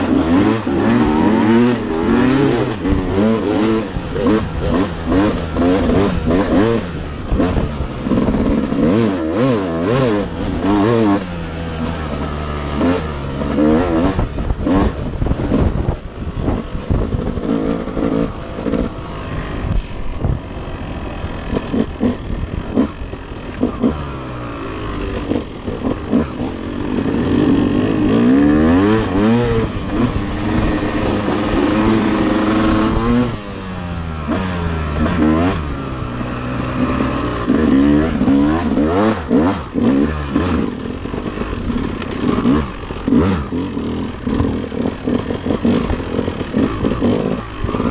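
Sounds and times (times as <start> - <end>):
dirt bike engine accelerating: 0.0 - 47.9.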